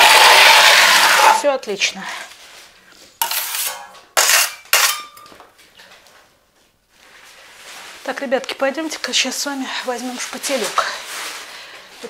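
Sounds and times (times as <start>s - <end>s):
metal tools clattering: 3.2s - 5.4s.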